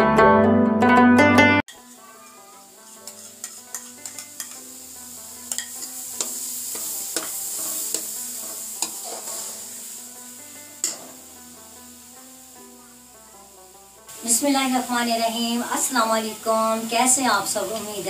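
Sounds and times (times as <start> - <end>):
spoon scraping steel pan: 1.7 - 4.8, 5.4 - 9.8, 10.8 - 11.2
sizzling hiss: 1.7 - 18.0
spoon knocking on pan: 5.5 - 8.2, 10.8 - 11.2.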